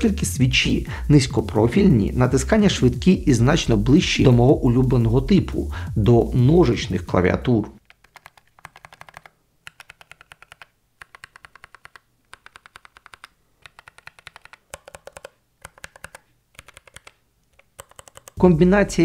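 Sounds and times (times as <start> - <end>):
mechanical keyboard typing: 7.8 - 18.4.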